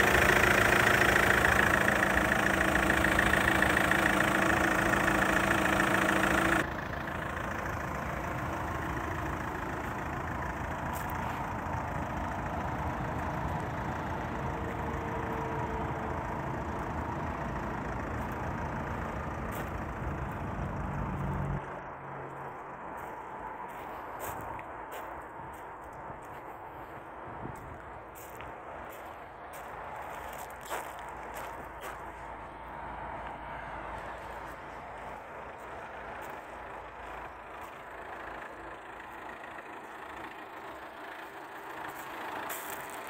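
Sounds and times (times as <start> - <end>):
diesel engine idling: 0.0 - 43.0.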